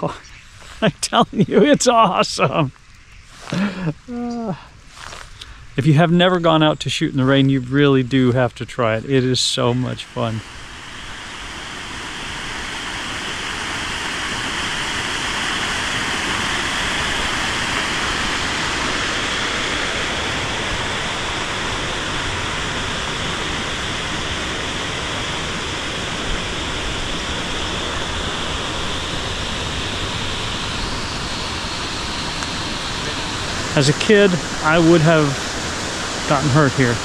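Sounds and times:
running water rushing: 8.8s - 37.0s.

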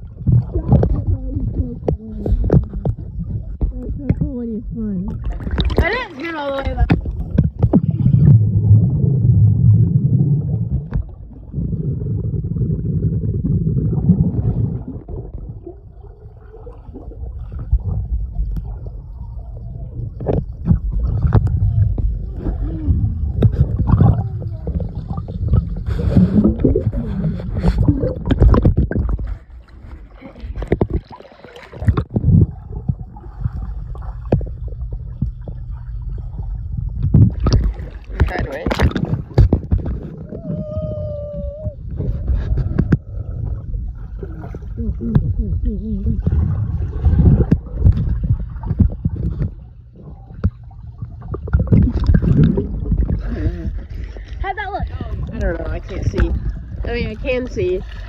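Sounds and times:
underwater knocks: 0.0s - 9.6s, 10.6s - 11.3s, 20.1s - 40.8s, 41.9s - 44.4s, 46.1s - 54.2s, 54.8s - 57.7s
gurgling bubbles: 0.0s - 58.0s
muffled underwater churning water: 0.0s - 58.0s.

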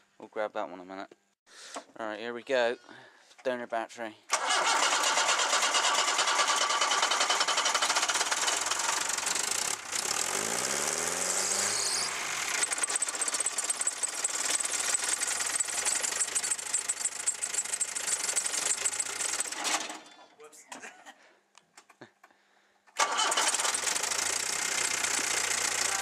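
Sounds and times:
diesel engine clattering: 23.0s - 26.0s.

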